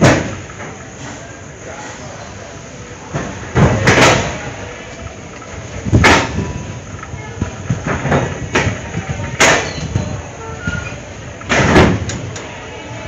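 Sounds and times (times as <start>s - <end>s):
train running rumble: 0.0s - 13.0s
sharp train clanks: 3.1s - 13.0s.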